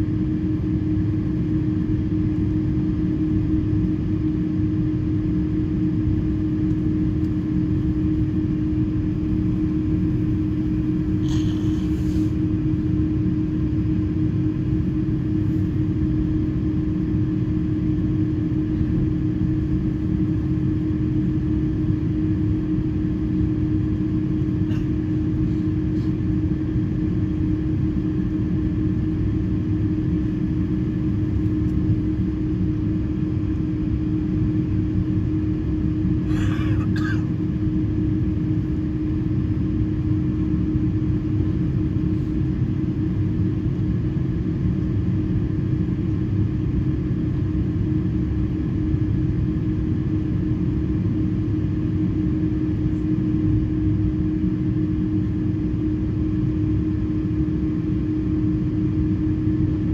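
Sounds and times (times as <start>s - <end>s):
airplane cabin hum: 0.0s - 59.9s
cough-like sound: 24.7s - 24.9s, 36.3s - 37.3s.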